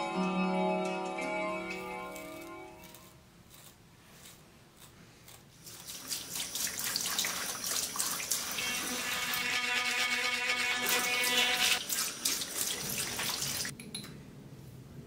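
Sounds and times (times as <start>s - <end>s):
razor scraping stubble: 1.7s - 6.0s.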